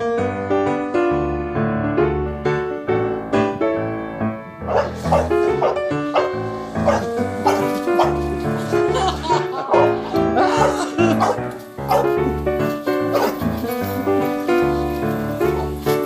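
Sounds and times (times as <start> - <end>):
piano music: 0.0 - 16.0
dog barking: 4.6 - 8.2, 9.6 - 12.1, 13.1 - 13.4.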